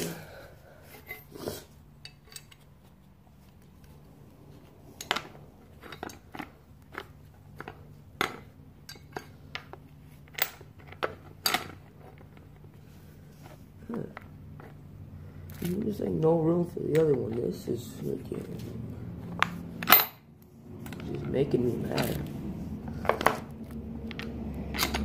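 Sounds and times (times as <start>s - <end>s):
metal bike parts knocking: 5.0s - 12.7s.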